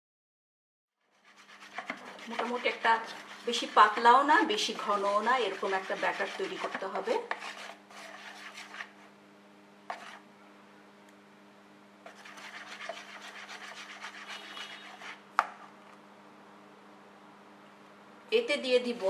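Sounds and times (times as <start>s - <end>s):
whisk scraping in plastic bowl: 1.0s - 9.1s, 9.9s - 10.2s, 12.0s - 15.3s
whisk tapping bowl: 1.2s - 8.9s, 12.1s - 15.2s.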